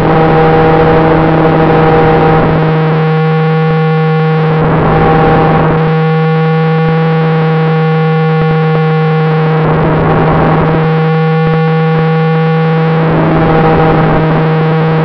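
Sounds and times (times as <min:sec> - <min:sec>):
wind rush: 0:00.0 - 0:03.0, 0:04.5 - 0:05.9, 0:09.6 - 0:11.0, 0:12.8 - 0:15.0
steady electric buzz: 0:00.0 - 0:15.0.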